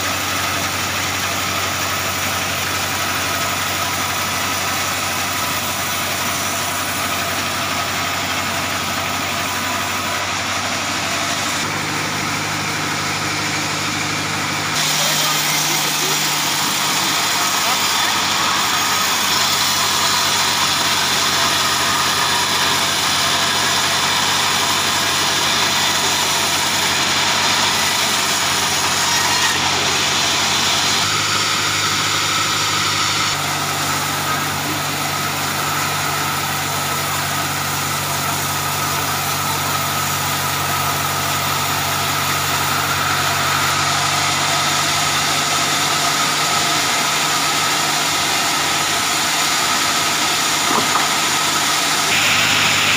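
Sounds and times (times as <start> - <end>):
saw blade whirring: 0.0 - 52.9
sawmill machine hum: 0.0 - 52.9.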